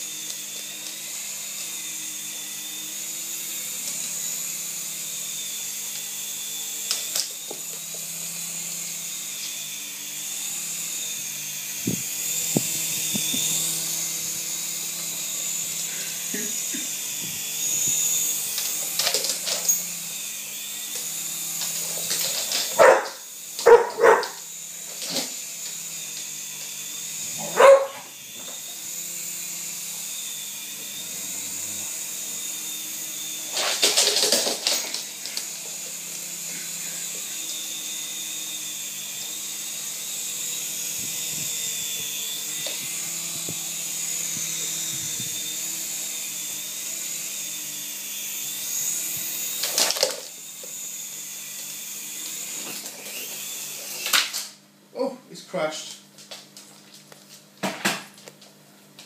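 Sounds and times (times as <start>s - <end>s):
toy helicopter motor whine: 0.0s - 59.0s
dog barking: 22.8s - 24.4s, 27.4s - 28.1s.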